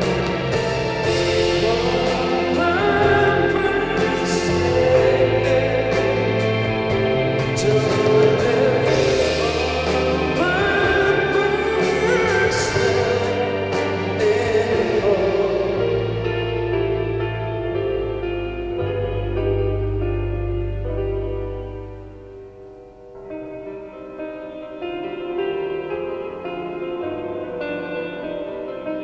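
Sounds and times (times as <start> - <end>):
man singing: 0.0 - 17.2
pop-rock band playing: 0.0 - 29.0.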